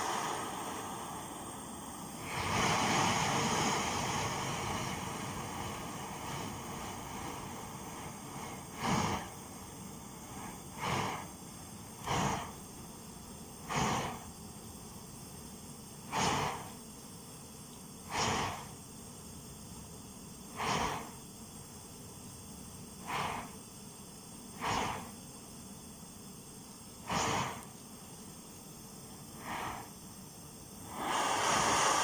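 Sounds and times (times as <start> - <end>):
whooshing puffs: 0.0 - 12.6, 13.6 - 14.3, 18.1 - 18.8, 20.6 - 21.2, 23.0 - 23.6, 24.6 - 25.2, 27.1 - 27.7, 29.3 - 30.0, 30.8 - 32.0
stove burning with hissing roar: 0.0 - 32.0.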